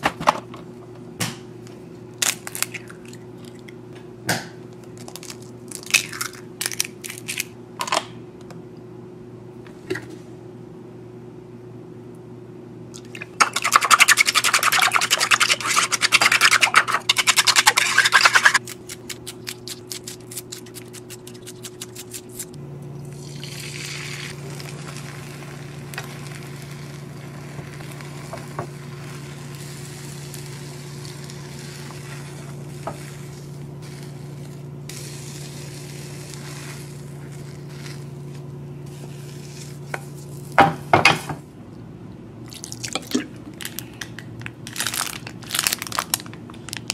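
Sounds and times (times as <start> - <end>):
chopsticks beating eggs in bowl: 13.2 - 22.5
egg sizzling in pan: 23.2 - 38.2.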